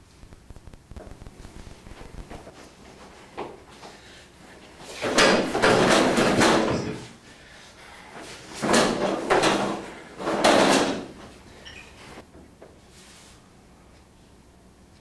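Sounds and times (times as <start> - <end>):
metal chairs and desks clattering: 4.8 - 7.2, 8.2 - 12.2.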